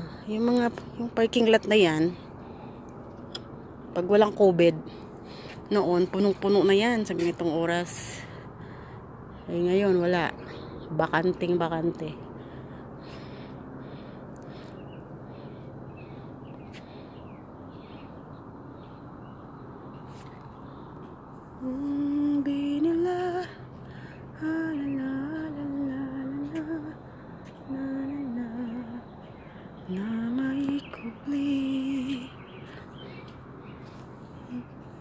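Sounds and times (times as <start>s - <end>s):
low background hum: 0.0s - 35.0s
woman humming a slow tune: 21.6s - 23.6s, 24.4s - 27.0s, 27.6s - 29.2s, 29.9s - 32.4s, 34.4s - 35.0s.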